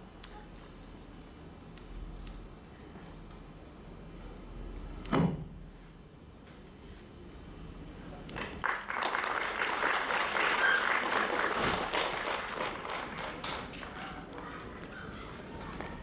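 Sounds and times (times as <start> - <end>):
audience applauding: 8.6 - 16.0.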